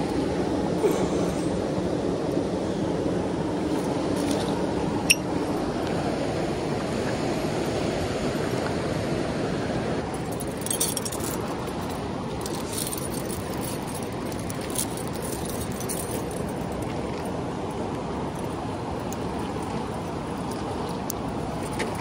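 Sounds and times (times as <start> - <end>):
flowing river water: 0.0 - 22.0
metal chain clinking: 10.2 - 17.2.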